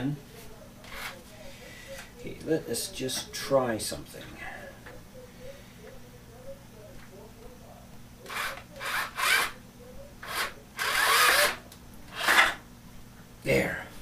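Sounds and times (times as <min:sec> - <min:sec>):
cordless drill bursts: 0:08.3 - 0:09.6, 0:10.2 - 0:11.6.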